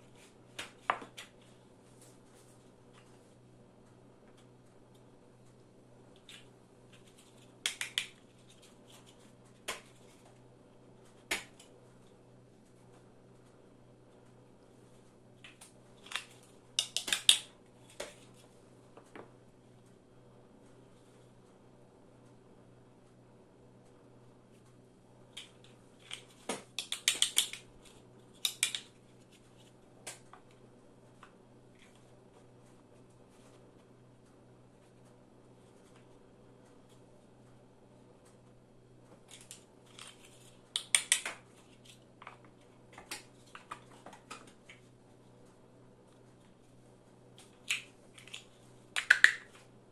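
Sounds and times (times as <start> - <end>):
plastic building blocks clacking: 16.0 - 17.5, 25.4 - 27.6, 28.4 - 28.9, 47.7 - 49.6.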